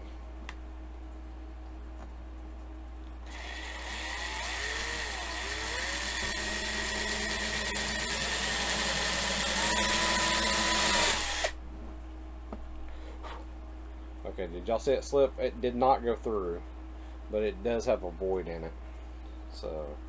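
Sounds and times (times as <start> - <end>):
power drill boring into metal: 3.3 - 11.6.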